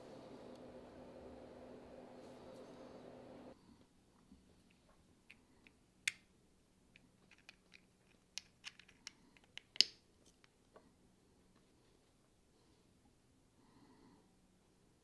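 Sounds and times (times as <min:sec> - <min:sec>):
plastic parts clicking together: 0:07.0 - 0:10.6.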